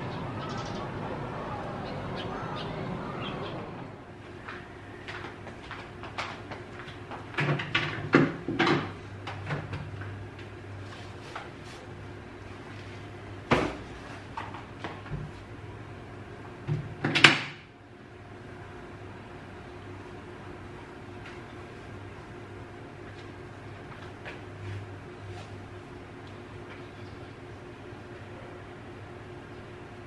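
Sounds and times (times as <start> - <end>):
low steady hum: 0.0 - 7.2.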